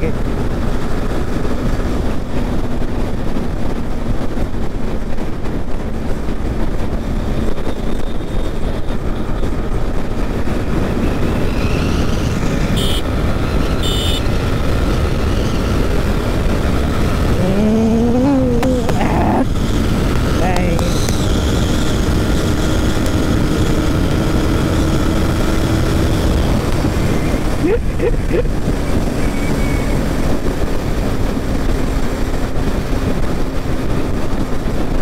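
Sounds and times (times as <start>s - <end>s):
wind on microphone: 0.0s - 35.0s
motorcycle engine running: 11.0s - 27.6s.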